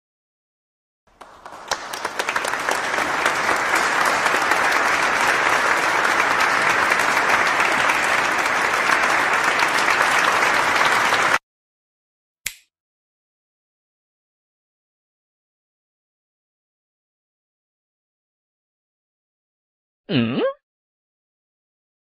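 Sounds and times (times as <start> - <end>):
crowd applauding: 1.1 - 11.4.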